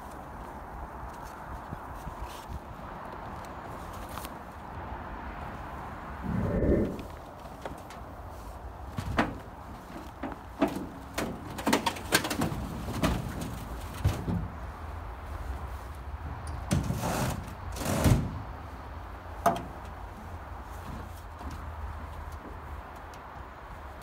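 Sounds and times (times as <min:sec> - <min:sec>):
wooden deck knocks and creaks: 0:08.9 - 0:14.6.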